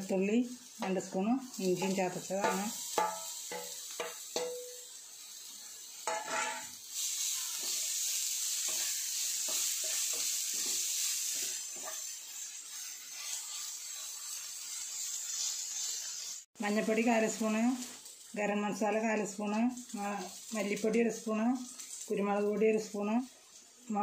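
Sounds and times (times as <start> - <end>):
vegetables sizzling in hot oil: 0.0 - 24.0
wooden spatula scraping pan: 8.6 - 16.3.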